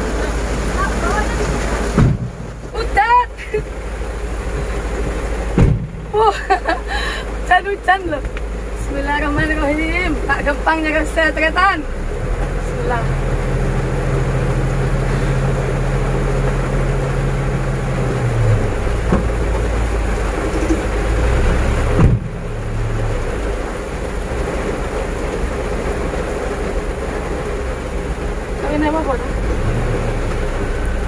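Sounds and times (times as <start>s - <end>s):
diesel engine running: 0.0s - 31.0s
sharp thump: 1.9s - 2.5s, 5.5s - 6.0s, 21.9s - 22.4s.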